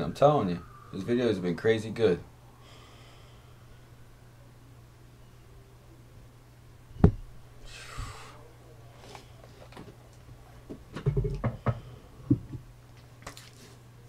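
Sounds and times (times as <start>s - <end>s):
low electrical hum: 0.0s - 14.0s
objects knocking on a desk: 10.9s - 12.6s.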